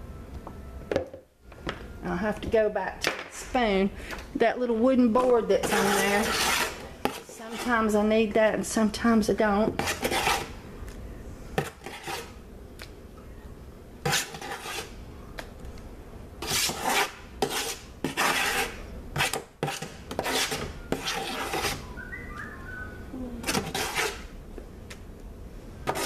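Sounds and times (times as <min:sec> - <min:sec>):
spoon scraping a pan: 0:05.2 - 0:08.0, 0:09.7 - 0:10.5, 0:11.6 - 0:12.4, 0:14.0 - 0:15.0, 0:16.4 - 0:21.8, 0:23.4 - 0:24.3.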